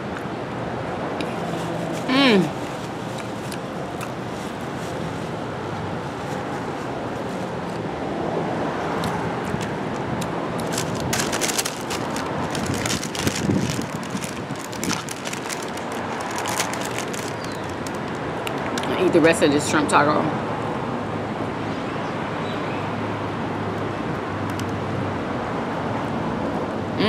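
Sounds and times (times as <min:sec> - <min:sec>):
traffic noise: 0:00.0 - 0:27.0
wind on microphone: 0:09.5 - 0:16.4
short crackles: 0:10.6 - 0:18.8.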